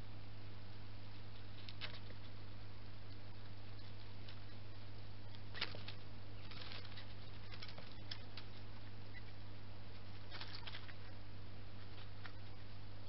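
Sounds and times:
steady low hum: 0:00.0 - 0:13.0
hedgehog rustling dry leaves: 0:05.5 - 0:09.3, 0:09.9 - 0:11.2.

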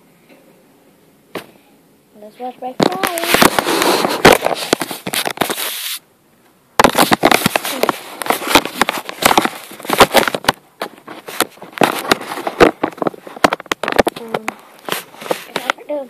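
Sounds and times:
microphone handling crackling: 0:02.8 - 0:05.8, 0:06.8 - 0:16.0.

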